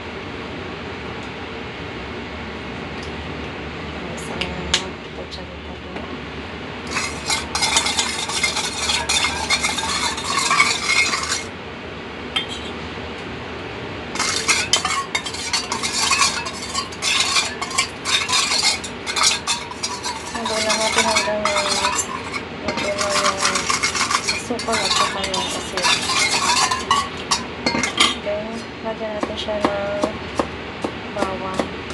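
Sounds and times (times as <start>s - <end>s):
metal spoon scraping steel bowl: 6.8s - 11.5s, 14.2s - 28.2s.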